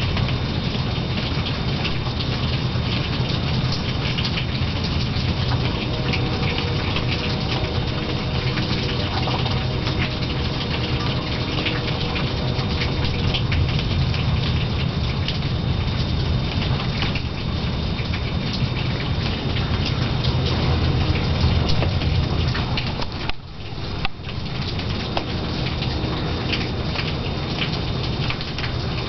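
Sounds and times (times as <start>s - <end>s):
heavy rain: 0.0s - 29.0s
low rumble: 3.4s - 29.0s.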